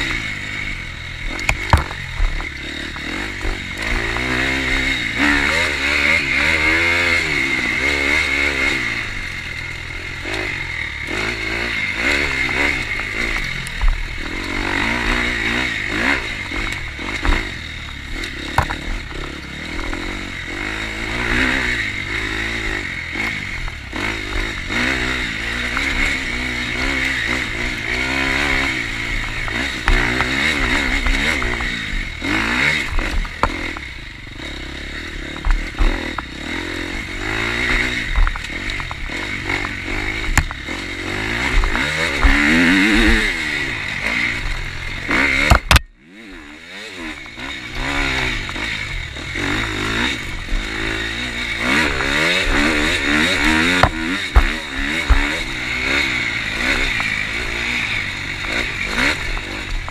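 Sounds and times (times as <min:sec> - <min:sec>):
dirt bike engine revving: 0:00.0 - 0:59.9
sharp crack: 0:01.2 - 0:07.6, 0:35.0 - 0:46.0, 0:47.0 - 0:59.9
bike knocks and clatter: 0:01.3 - 0:05.9, 0:12.0 - 0:20.6, 0:25.6 - 0:34.0, 0:35.0 - 0:43.5, 0:44.1 - 0:45.9, 0:49.3 - 0:59.9.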